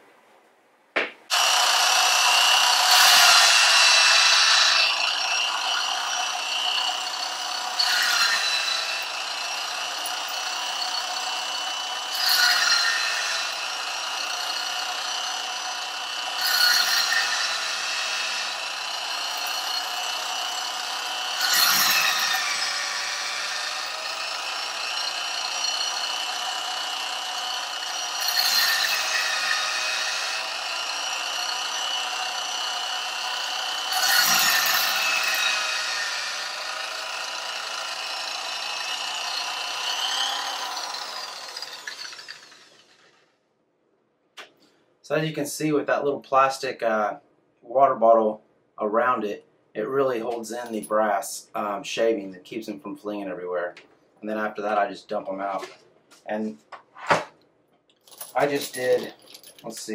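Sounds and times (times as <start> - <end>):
electric drill spinning: 1.3 - 43.3.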